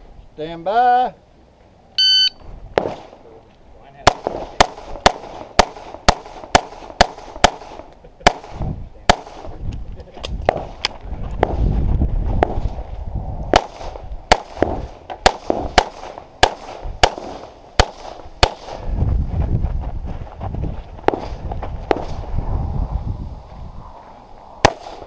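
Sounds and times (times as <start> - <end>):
pistol shots: 13.5 - 18.8, 24.6 - 25.0
low rumble: 18.8 - 25.0.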